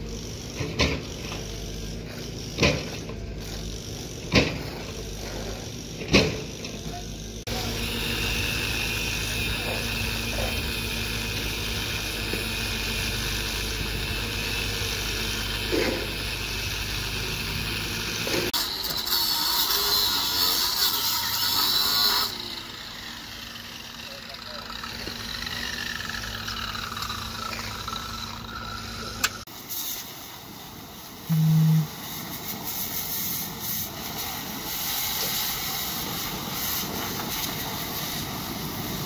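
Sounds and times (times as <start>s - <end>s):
angle grinder whining: 0.0s - 29.5s, 31.3s - 32.0s.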